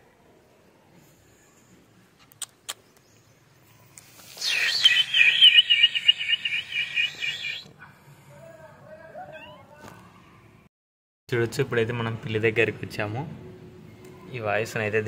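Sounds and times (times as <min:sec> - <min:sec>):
chirping trill from phone speaker: 0:04.4 - 0:07.7.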